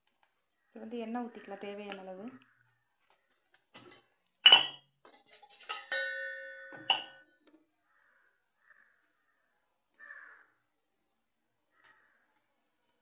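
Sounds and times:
metal pan clanking on stove burner: 0:03.8 - 0:07.2.

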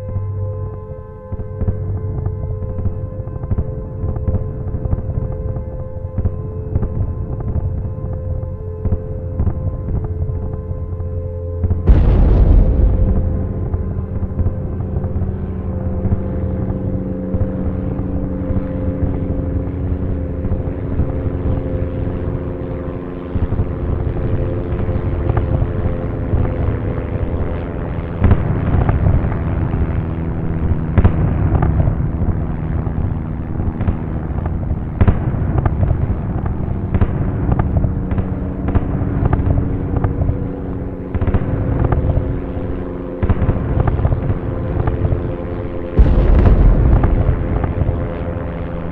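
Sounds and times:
bomber engines droning: 0:00.0 - 0:48.9
bomb explosions: 0:11.9 - 0:17.4, 0:46.0 - 0:48.9
sharp cracks: 0:46.0 - 0:48.9.

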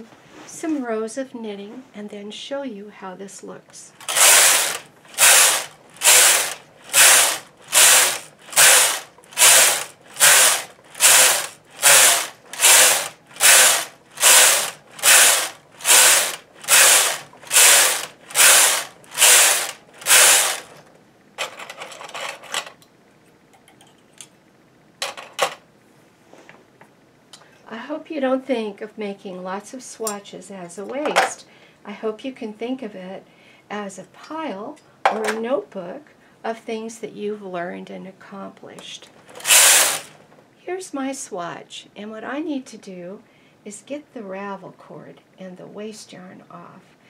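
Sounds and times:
knitting machine carriage rattling: 0:04.0 - 0:22.8, 0:39.3 - 0:40.1.

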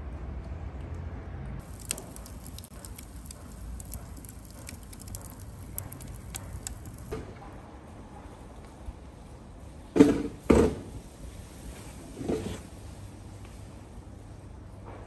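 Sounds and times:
firewood crackling in a stove: 0:01.6 - 0:09.9.

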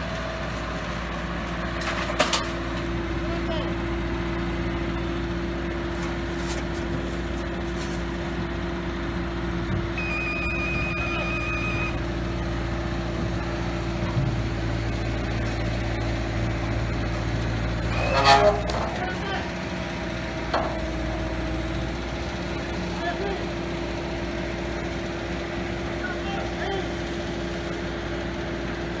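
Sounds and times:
diesel engine running: 0:00.0 - 0:29.0
high electronic beep: 0:10.0 - 0:12.0.

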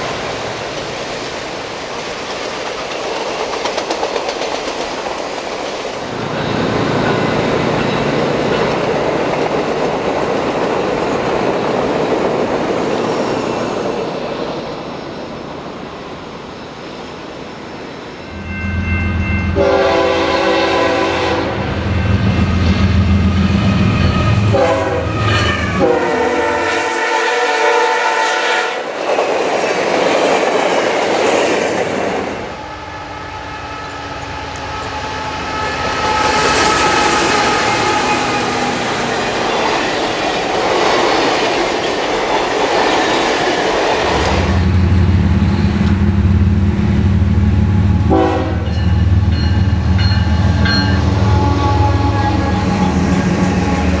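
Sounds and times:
train wheels rushing: 0:00.0 - 0:15.4, 0:18.3 - 0:54.0
train air horn: 0:19.4 - 0:22.0, 0:23.2 - 0:28.9, 0:32.6 - 0:38.8, 0:47.8 - 0:48.8, 0:51.0 - 0:54.0
diesel locomotive engine running: 0:43.3 - 0:54.0.

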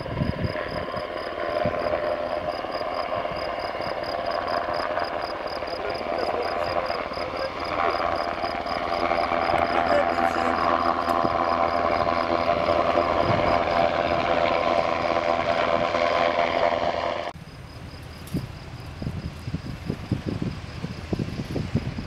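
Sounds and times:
wind thumps on microphone: 0:00.0 - 0:05.2, 0:10.9 - 0:16.9, 0:17.7 - 0:22.0
helicopter turbine whine and rotor: 0:00.0 - 0:22.0.

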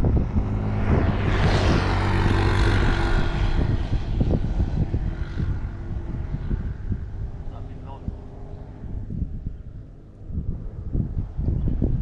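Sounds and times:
motorbike engine passing: 0:00.0 - 0:11.9
wind rumbling on microphone: 0:00.0 - 0:12.0.

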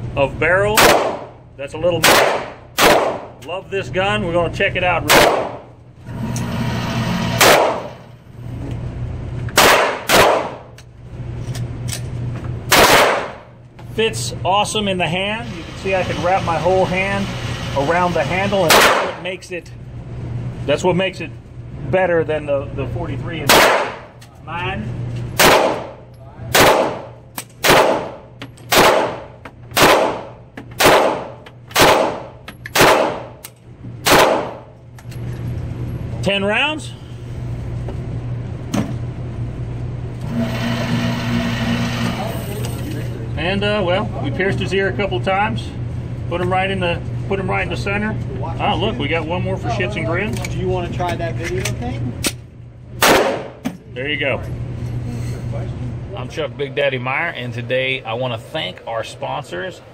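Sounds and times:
steady low hum: 0:00.0 - 0:59.9
gunshots with echo: 0:00.8 - 0:01.4, 0:02.0 - 0:03.4, 0:05.1 - 0:05.7, 0:07.4 - 0:08.0, 0:09.6 - 0:10.7, 0:12.7 - 0:13.4, 0:18.7 - 0:19.2, 0:23.5 - 0:24.1, 0:25.4 - 0:33.3, 0:34.0 - 0:34.7, 0:53.0 - 0:53.6.

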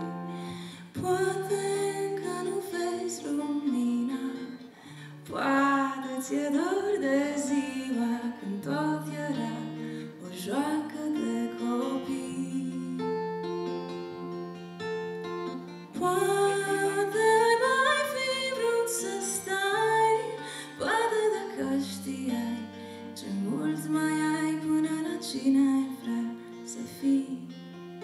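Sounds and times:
picked acoustic guitar: 0:00.0 - 0:28.0
woman singing folk song: 0:00.0 - 0:28.0.

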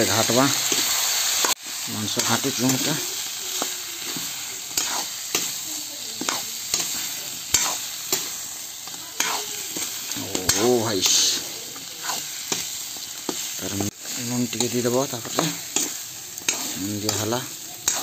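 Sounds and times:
chicken sizzling in oil: 0:00.0 - 0:18.0
ladle scraping pan: 0:03.6 - 0:05.6, 0:09.2 - 0:12.7, 0:14.0 - 0:18.0.

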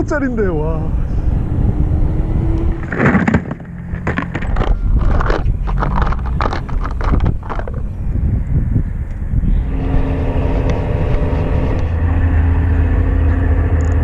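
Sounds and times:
wind rumble on microphone: 0:00.0 - 0:14.0
plastic tackle clicking and clattering: 0:03.1 - 0:07.9.

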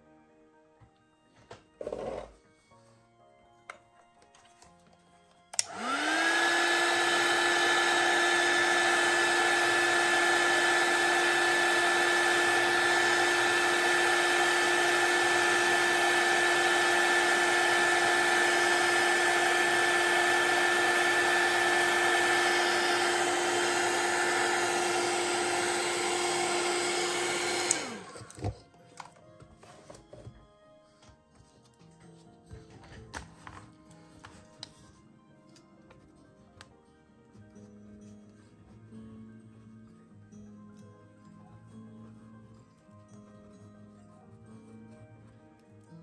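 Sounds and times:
hot air gun fan whine: 0:05.5 - 0:28.5.

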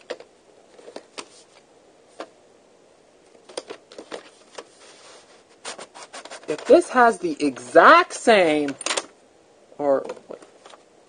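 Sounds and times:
faint rustle: 0:04.0 - 0:06.6.

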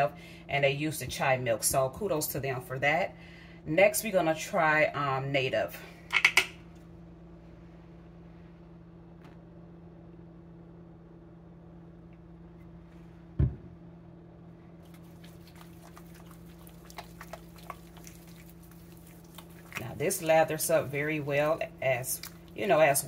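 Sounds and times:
thump: 0:13.4 - 0:13.7
hands lathering body wash: 0:14.8 - 0:23.0.

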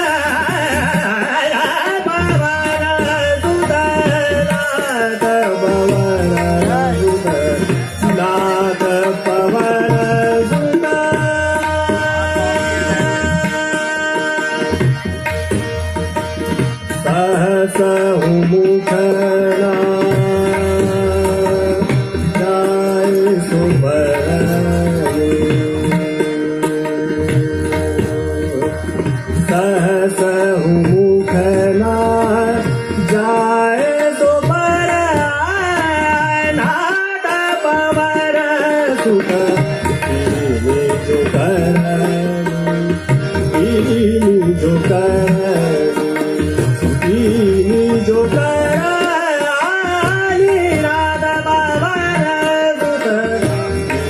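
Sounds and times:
man singing classical vocals: 0:00.0 - 0:15.0, 0:16.9 - 0:54.0
harmonium: 0:00.0 - 0:54.0
tabla: 0:00.0 - 0:54.0.

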